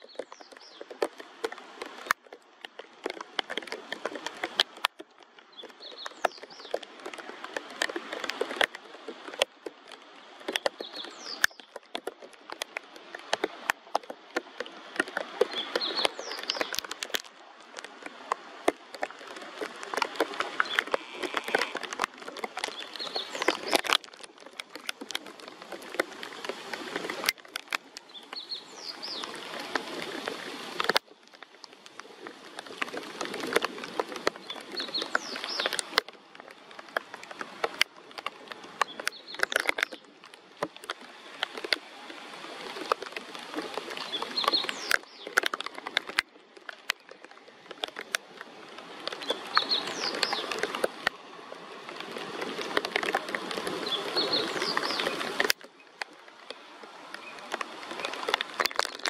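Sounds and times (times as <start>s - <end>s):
songbird singing: 0.0s - 1.0s, 5.5s - 7.2s, 10.5s - 12.0s, 15.4s - 17.2s, 20.6s - 25.2s, 28.0s - 29.6s, 34.4s - 36.0s, 44.0s - 46.2s, 49.1s - 50.7s, 53.8s - 56.0s
rain pattering: 0.0s - 59.0s.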